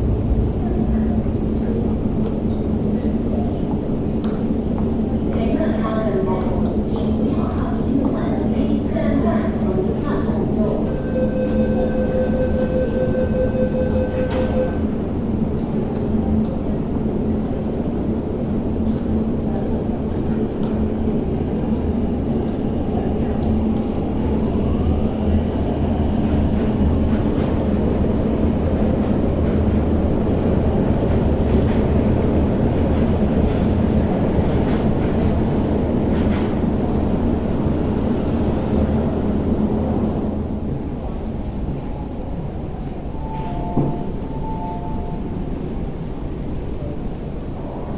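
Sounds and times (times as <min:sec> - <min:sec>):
train wheels rumbling: 0:00.0 - 0:47.9
warning tone: 0:10.8 - 0:15.0.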